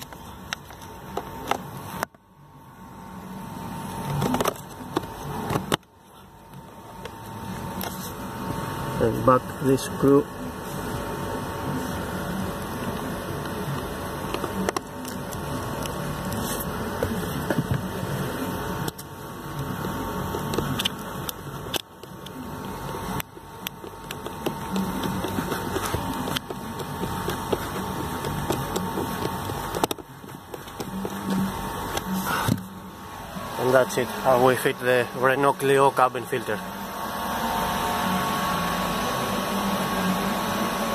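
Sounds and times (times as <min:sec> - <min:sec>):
screwdriver scraping and clicking: 0:18.8 - 0:32.6.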